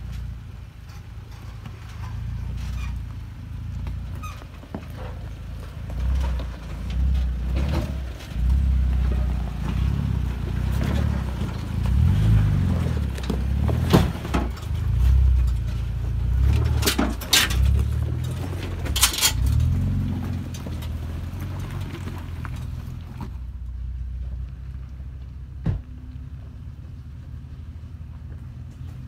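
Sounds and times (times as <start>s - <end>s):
truck engine rumbling: 0.0s - 29.0s
rock cracking under tyres: 2.4s - 23.7s.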